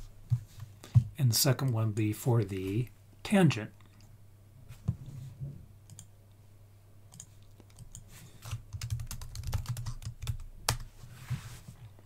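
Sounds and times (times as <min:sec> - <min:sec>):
computer mouse clicks: 0:07.1 - 0:08.6.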